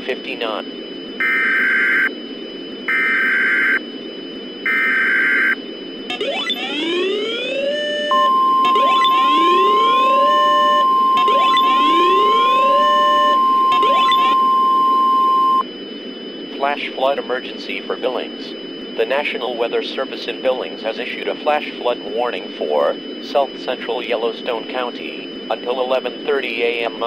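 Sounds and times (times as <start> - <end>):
steady warning alarm tone: 0.0 - 27.0
rising siren-like sweep: 3.0 - 20.4
digital alert header bursts: 6.1 - 15.6.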